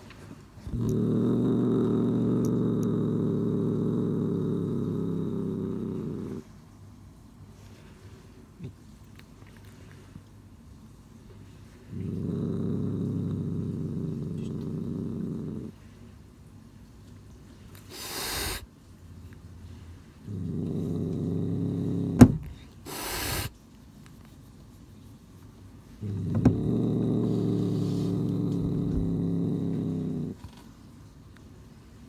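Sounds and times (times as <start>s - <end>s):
cat growling: 0.6s - 6.5s, 11.7s - 16.0s, 17.9s - 18.7s, 19.7s - 23.5s, 26.0s - 30.5s
cat hissing: 17.7s - 18.7s, 20.3s - 23.6s, 26.0s - 30.4s.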